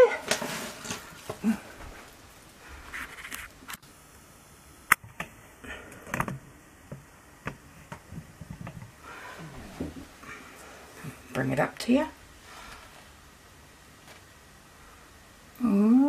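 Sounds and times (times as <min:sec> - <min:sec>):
faint scrapes: 0:00.0 - 0:03.7.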